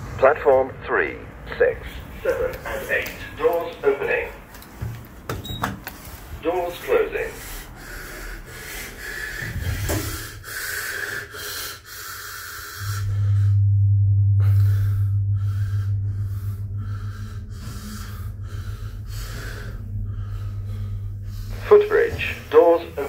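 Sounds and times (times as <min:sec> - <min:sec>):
lift motor humming: 0:12.6 - 0:23.0.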